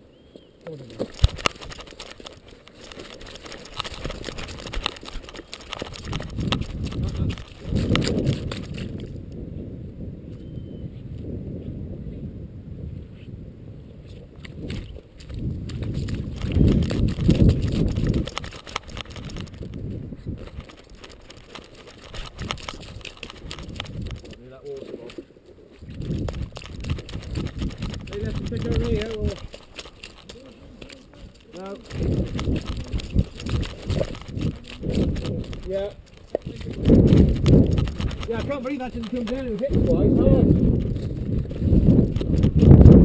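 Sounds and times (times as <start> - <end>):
camera clicks and rattles: 0.6 - 9.4, 14.4 - 43.0.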